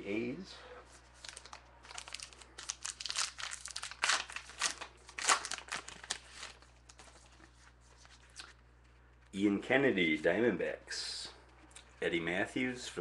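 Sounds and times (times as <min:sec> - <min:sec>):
wrapper crinkling and tearing: 0:01.2 - 0:08.6.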